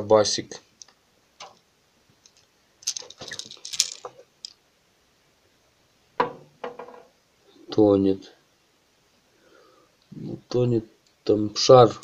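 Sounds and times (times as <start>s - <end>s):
hooks clicking and rattling: 2.2s - 4.6s.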